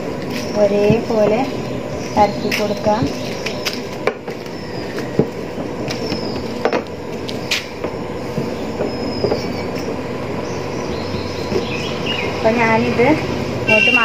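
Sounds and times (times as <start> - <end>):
steady background rumble: 0.0 - 14.0.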